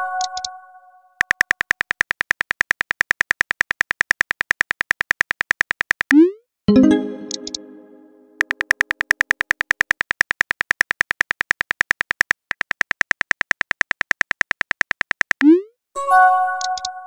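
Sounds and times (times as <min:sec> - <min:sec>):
phone keyboard clicks: 0:00.2 - 0:00.5, 0:01.2 - 0:06.2, 0:08.4 - 0:15.4, 0:16.6 - 0:16.9
multi-tone chime: 0:06.7 - 0:08.4.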